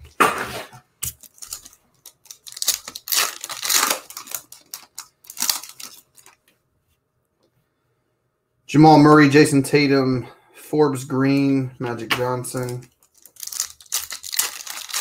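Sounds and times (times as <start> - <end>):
foil wrapper crinkling and tearing: 1.0 - 6.4, 12.5 - 15.0.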